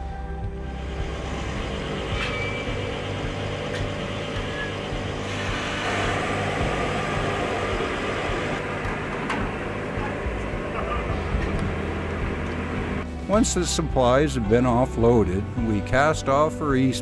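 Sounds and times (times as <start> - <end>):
low hum of ship engine: 0.0 - 13.3
deck crane machinery hoisting: 0.7 - 13.1.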